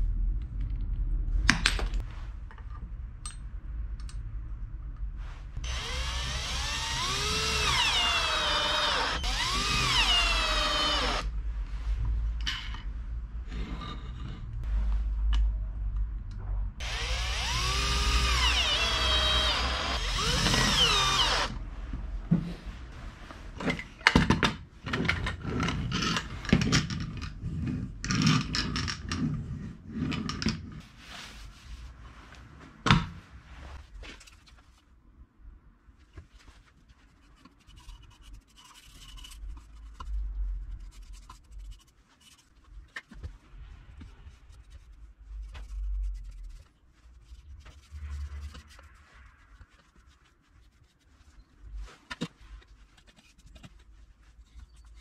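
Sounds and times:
electric drill running: 5.6 - 11.3, 16.8 - 21.6.

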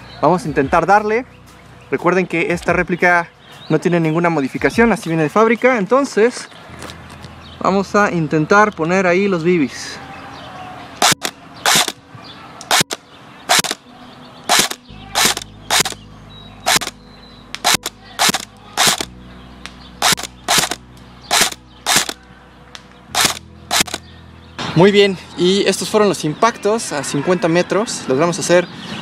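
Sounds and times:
airsoft rifle shots: 11.0 - 12.0, 12.6 - 13.8, 14.5 - 16.0, 16.7 - 17.0, 17.6 - 19.1, 20.0 - 22.2, 23.1 - 24.0.

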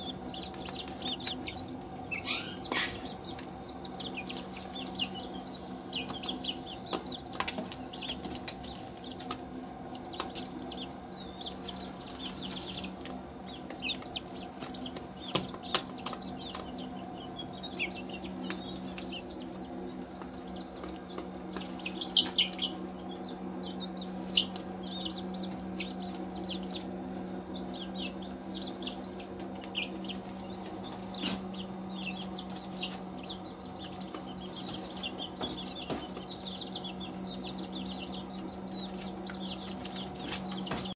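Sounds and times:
chicks peeping: 0.0 - 40.9
steady low hum: 0.0 - 40.9
sharp pecking taps: 13.0 - 16.9.

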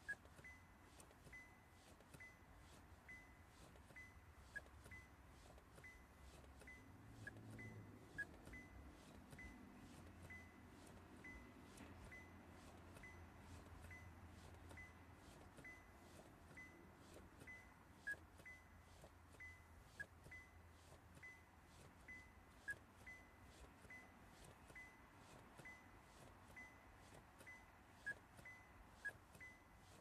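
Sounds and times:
car electronic warning chime: 0.0 - 30.0.

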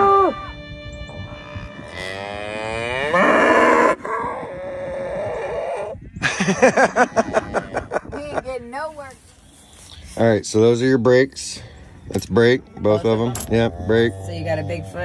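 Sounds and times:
cattle mooing: 0.0 - 6.0, 12.7 - 15.0.

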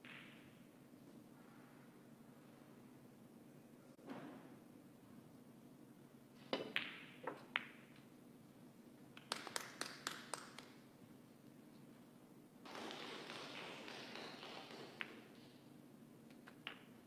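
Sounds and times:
snooker balls clicking: 6.6 - 8.1, 12.7 - 15.6, 16.3 - 17.0.

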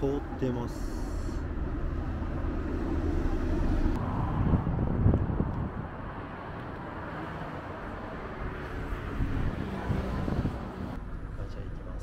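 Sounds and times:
traffic rumble: 0.0 - 12.0
wind buffeting microphone: 1.6 - 7.1, 7.8 - 11.0.

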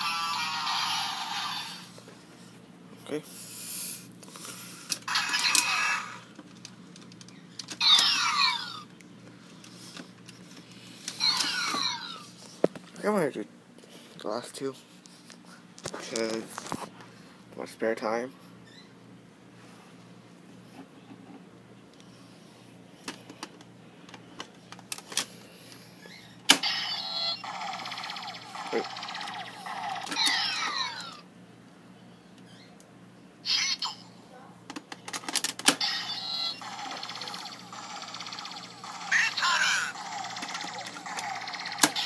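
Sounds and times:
toy electronic sound effects: 0.0 - 2.0, 5.0 - 6.3, 7.8 - 8.9, 11.2 - 12.2, 26.5 - 31.2, 33.4 - 34.1, 35.7 - 42.0.

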